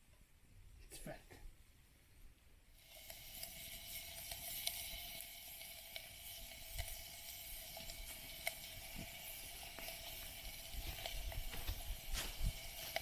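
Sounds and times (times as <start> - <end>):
wood fire crackling: 0.0 - 13.0
sausage sizzling: 2.6 - 13.0.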